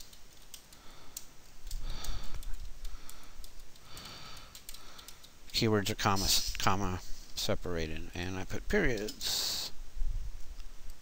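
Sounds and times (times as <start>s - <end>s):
breaths: 0.7s - 5.3s.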